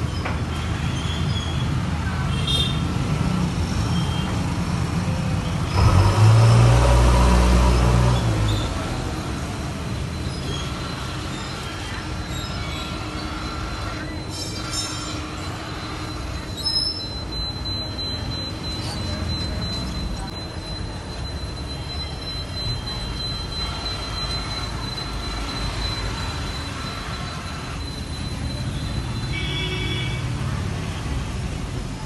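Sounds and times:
vehicle passing by: 5.8 - 9.8.

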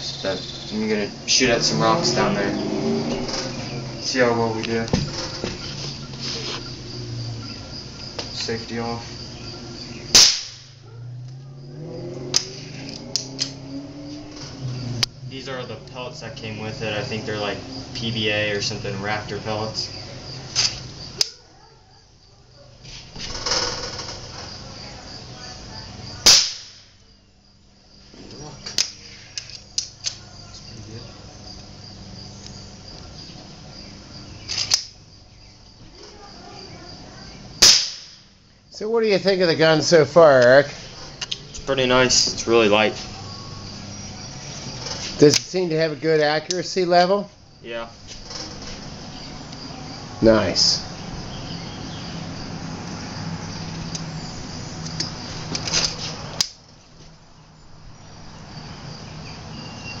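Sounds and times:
crickets chirping: 0.0 - 60.0
rifle barrel snapping shut: 10.2 - 10.7, 26.3 - 26.8, 37.6 - 38.2.

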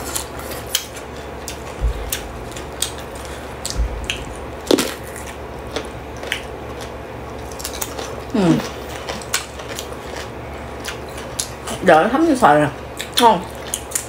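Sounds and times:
crunchy vegetables being chewed: 0.0 - 11.8, 12.8 - 14.0
low thumps: 1.5 - 7.4.

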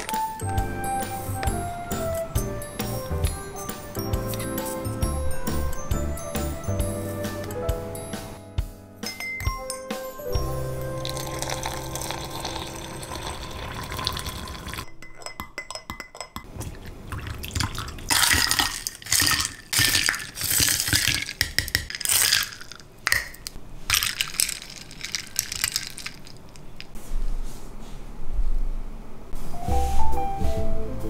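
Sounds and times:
dishes clinking: 14.1 - 16.9.

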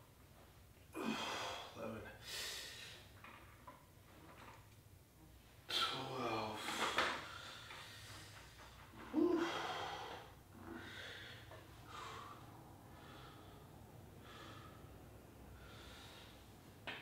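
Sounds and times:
person breathing heavily: 1.0 - 3.1, 6.1 - 16.6.

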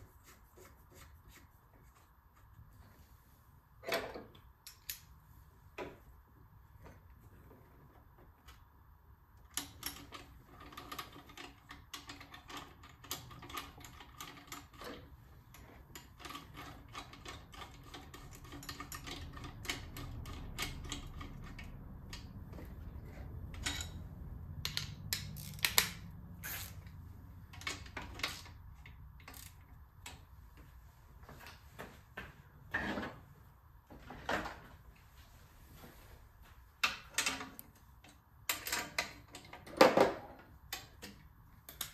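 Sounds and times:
tools and metal fittings clinking: 3.8 - 5.1, 9.5 - 22.3, 22.9 - 26.9.

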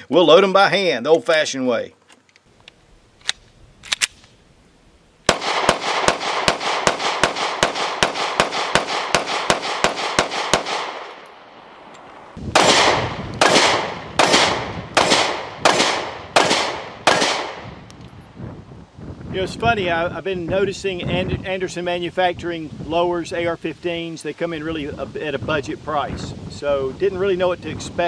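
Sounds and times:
sharp clicks: 2.1 - 4.4
pistol gunshots: 5.3 - 11.2, 12.5 - 17.8.

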